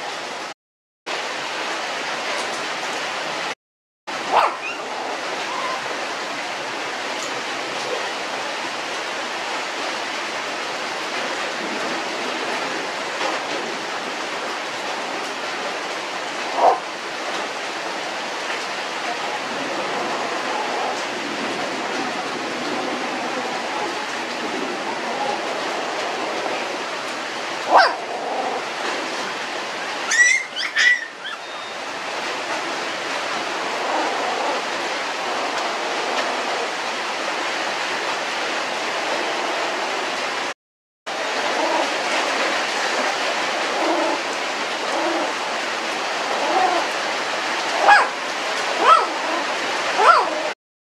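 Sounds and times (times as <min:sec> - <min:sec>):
puppies whimpering and squealing: 0:04.4 - 0:05.9, 0:30.1 - 0:31.8.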